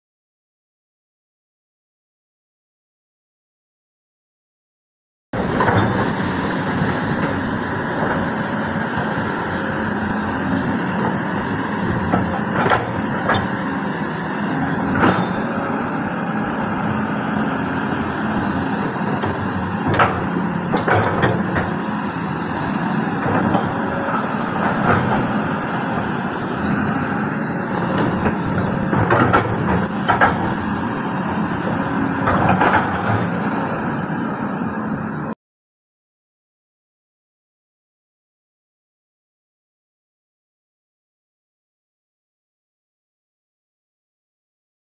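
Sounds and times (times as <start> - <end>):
excavator diesel engine: 5.4 - 35.4
sharp knocks and clanks: 11.9 - 13.6, 14.9 - 15.6, 19.1 - 21.8, 23.2 - 25.5, 27.8 - 30.8, 31.7 - 33.4.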